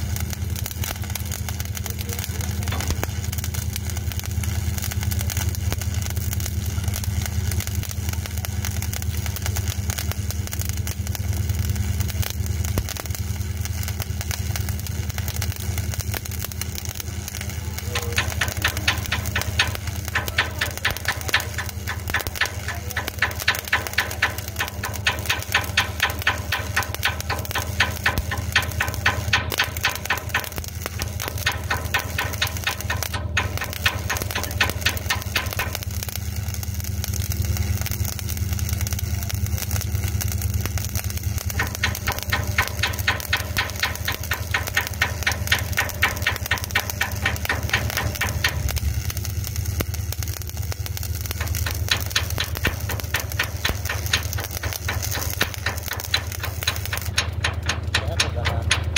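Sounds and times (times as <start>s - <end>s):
engine running: 0.0s - 58.9s
welding arc crackling: 0.0s - 58.9s.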